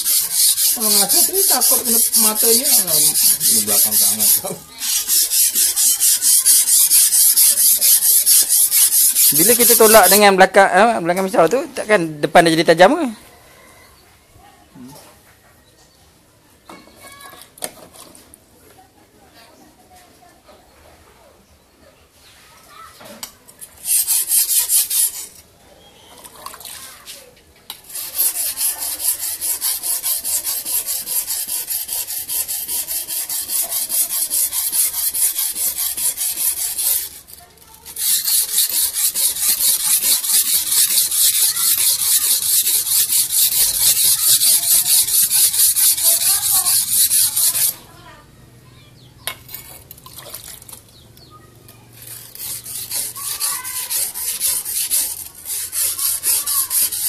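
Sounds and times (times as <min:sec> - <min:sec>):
blade grinding on whetstone: 0:00.0 - 0:10.4, 0:23.6 - 0:25.5, 0:27.7 - 0:47.9, 0:51.9 - 0:57.0.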